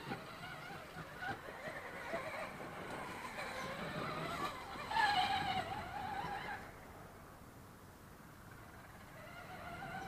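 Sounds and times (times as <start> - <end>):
electric motor whining: 0.0 - 6.7.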